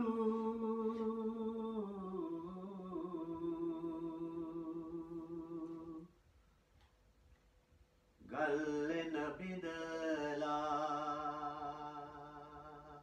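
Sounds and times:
man singing: 0:08.2 - 0:13.0.

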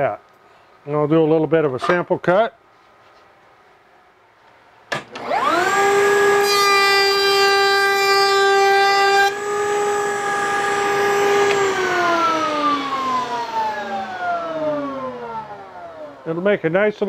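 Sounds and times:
router motor whining: 0:05.0 - 0:16.3
router bit cutting wood: 0:05.1 - 0:16.4.

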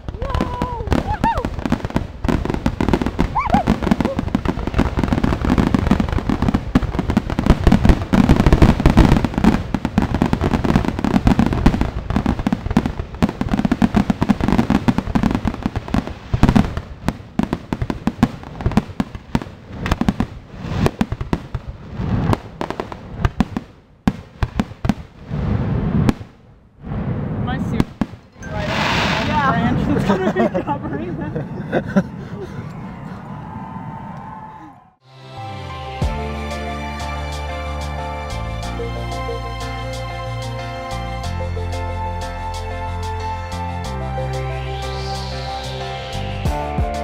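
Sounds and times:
fireworks bangs and crackles: 0:00.0 - 0:31.1.

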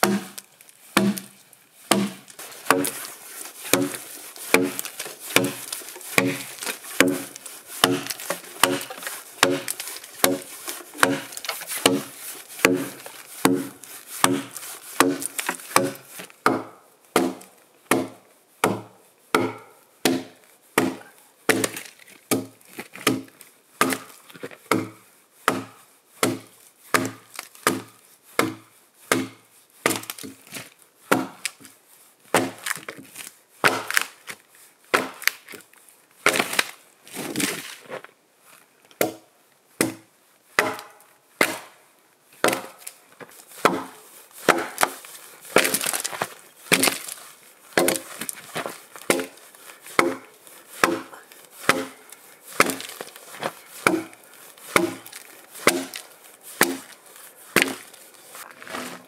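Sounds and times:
axe chopping log: 0:00.0 - 0:00.4, 0:01.0 - 0:31.7, 0:32.3 - 0:34.2, 0:34.9 - 0:35.5, 0:36.2 - 0:36.7, 0:39.0 - 0:39.2, 0:39.8 - 0:41.8, 0:42.4 - 0:42.9, 0:43.6 - 0:58.0.

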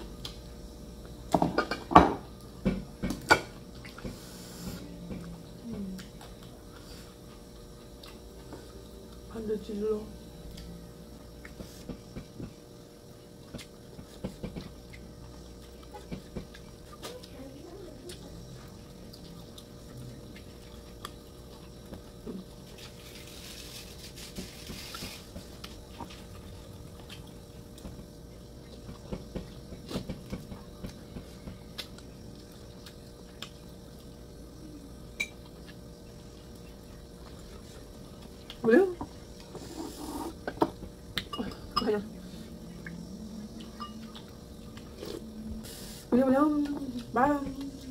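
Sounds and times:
person chewing food: 0:03.1 - 0:09.3, 0:10.4 - 0:17.4, 0:18.0 - 0:45.6
rustling scrape: 0:22.8 - 0:25.3
spoon clinking against bowl: 0:43.8 - 0:44.0.

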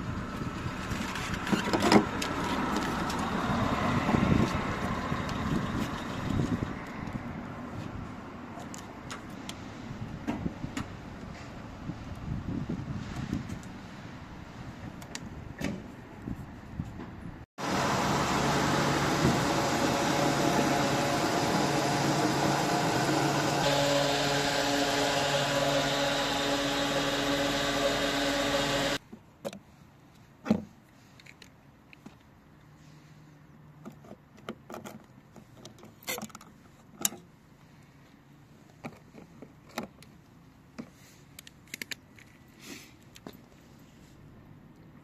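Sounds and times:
car engine and road noise: 0:00.0 - 0:30.4.

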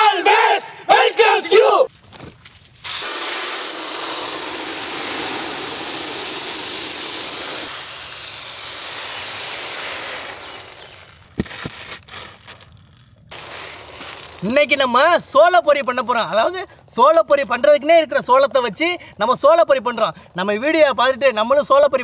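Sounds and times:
kernels pouring onto metal plate: 0:02.8 - 0:15.4.

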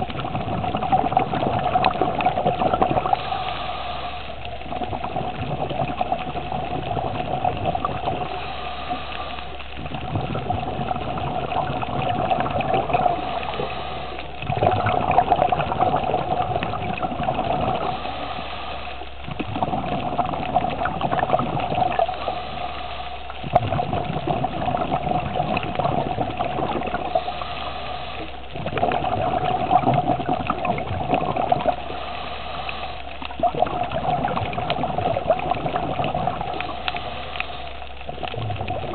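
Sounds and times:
exhaled bubbles rushing: 0:00.0 - 0:38.9
regulator breathing hiss: 0:03.0 - 0:04.6, 0:08.1 - 0:09.7, 0:12.8 - 0:14.4, 0:17.7 - 0:19.2, 0:21.9 - 0:23.5, 0:27.0 - 0:28.5, 0:31.7 - 0:33.2, 0:36.4 - 0:37.9.

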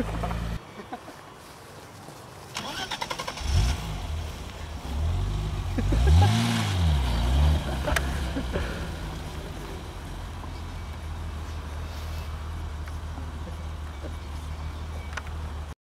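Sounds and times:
car engine starting and revving: 0:00.0 - 0:00.6, 0:02.5 - 0:11.7.

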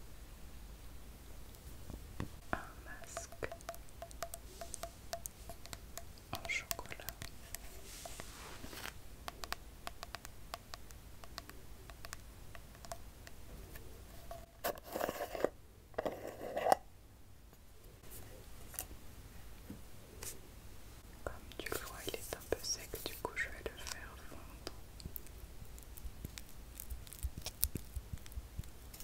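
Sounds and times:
fingernails tapping on jar lids: 0:03.0 - 0:07.7, 0:09.3 - 0:13.4
rough scraping: 0:14.1 - 0:16.8.

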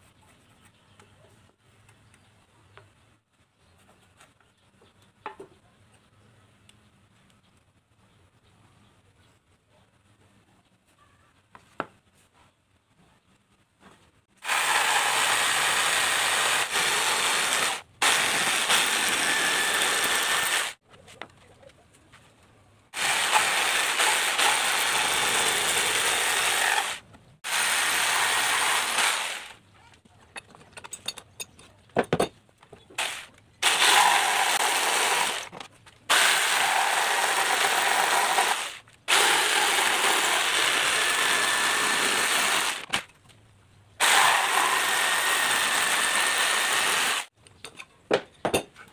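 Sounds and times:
electric jigsaw cutting wood: 0:14.4 - 0:20.8, 0:23.0 - 0:29.6, 0:33.0 - 0:43.0, 0:44.0 - 0:47.3.

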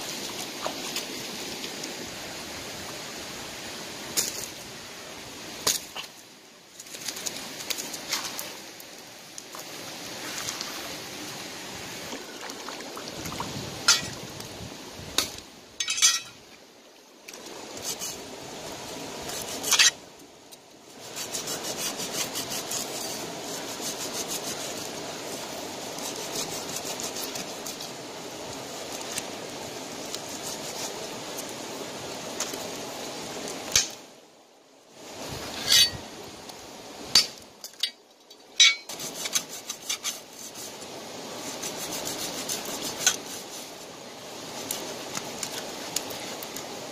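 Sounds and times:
running water: 0:00.0 - 0:46.9
knife scraping fish: 0:21.0 - 0:24.8.

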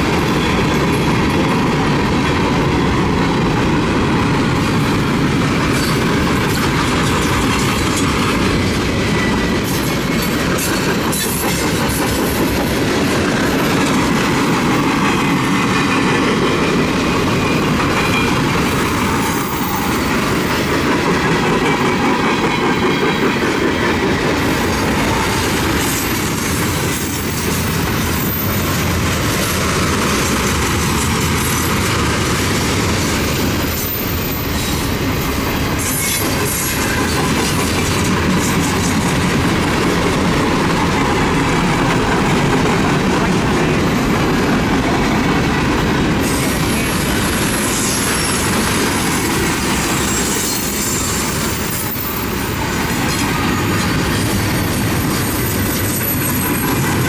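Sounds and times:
train wheels clacking: 0:00.0 - 0:57.0
high-pitched wheel squeal: 0:49.9 - 0:52.4.

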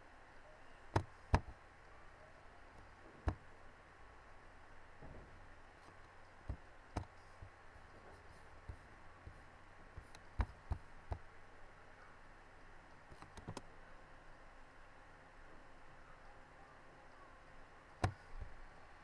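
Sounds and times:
sharp clicks and light knocks: 0:05.0 - 0:09.4, 0:10.0 - 0:11.3, 0:13.1 - 0:13.7, 0:18.0 - 0:18.5.

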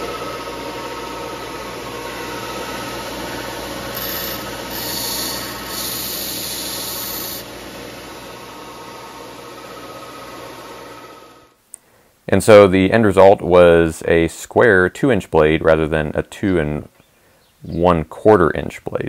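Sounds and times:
belt sander running: 0:00.0 - 0:11.6
steel blade grinding on belt: 0:03.7 - 0:07.5.

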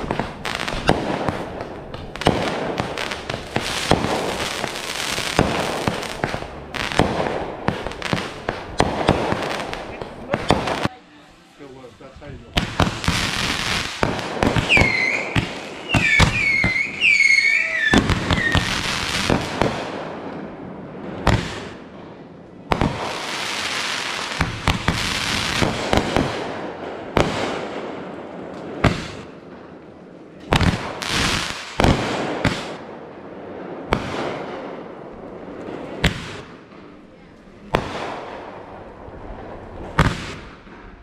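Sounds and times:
fireworks whistling: 0:00.0 - 0:10.9, 0:12.6 - 0:19.9
fireworks bangs and crackling pops: 0:00.0 - 0:11.0, 0:12.5 - 0:41.0
firework hissing rush: 0:12.6 - 0:19.5.

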